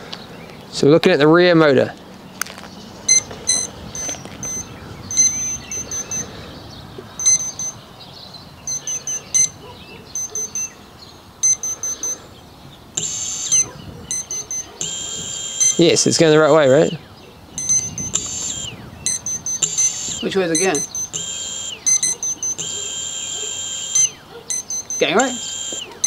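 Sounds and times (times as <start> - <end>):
high-pitched motor beeps: 3.0 - 6.3, 7.2 - 7.8, 8.6 - 10.8, 11.4 - 12.2, 13.0 - 26.0
motor spinning up whine: 13.0 - 15.8, 17.6 - 24.2.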